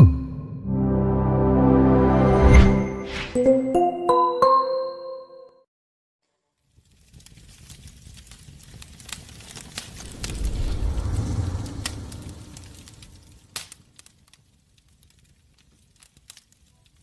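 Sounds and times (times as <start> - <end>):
sparks crackling and snapping: 6.6 - 17.0
deep fiery rumble: 7.6 - 14.1
sharp crack: 8.8 - 14.4.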